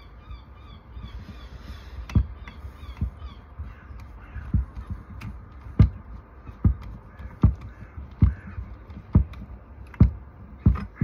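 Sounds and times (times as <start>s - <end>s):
dull knock: 4.4s - 11.0s.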